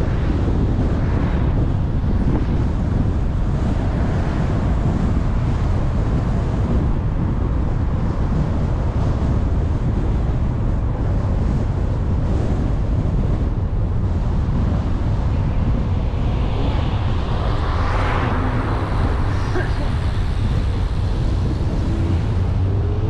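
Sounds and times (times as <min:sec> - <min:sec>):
car road and tyre noise: 0:00.0 - 0:23.0
wind buffeting microphone: 0:00.0 - 0:23.0.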